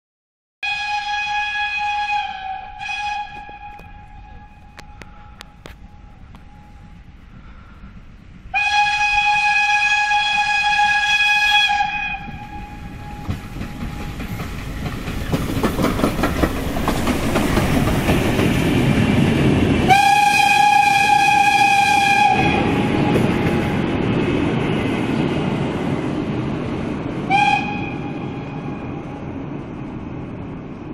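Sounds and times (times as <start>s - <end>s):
steam locomotive whistle: 0.6s - 6.9s, 8.5s - 14.4s, 19.8s - 23.4s, 27.3s - 29.0s
train wheels rumbling on bridge: 1.3s - 30.9s.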